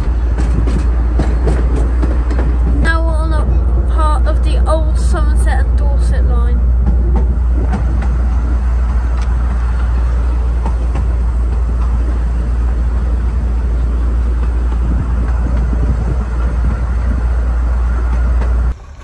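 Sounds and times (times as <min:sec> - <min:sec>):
railway carriage rumbling: 0:00.0 - 0:19.0
wheels clicking on rails: 0:00.0 - 0:19.0.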